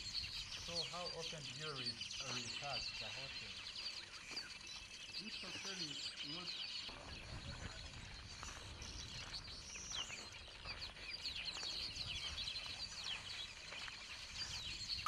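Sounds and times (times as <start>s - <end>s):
birds chirping and twittering: 0.0s - 15.0s.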